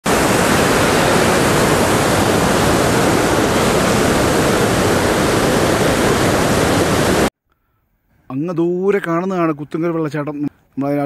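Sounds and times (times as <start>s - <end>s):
river rushing over rocks: 0.1s - 7.3s.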